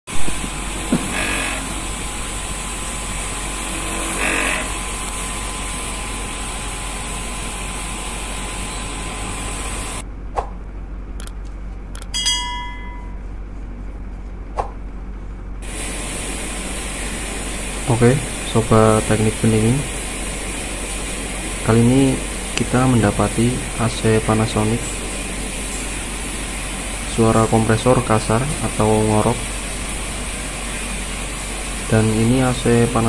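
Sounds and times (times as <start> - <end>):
air conditioner compressor snoring: 0.1 - 11.3, 12.8 - 33.0
sharp clicks: 11.2 - 12.2
short electronic chime: 12.0 - 13.2.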